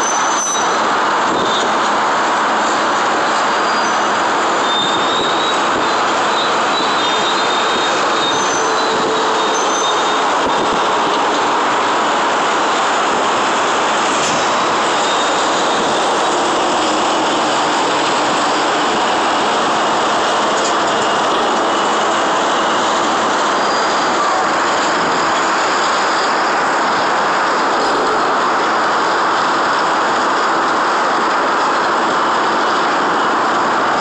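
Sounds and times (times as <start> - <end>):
faint high squeals: 0.0 - 0.8, 3.6 - 10.3
heavy traffic roar: 0.0 - 34.0.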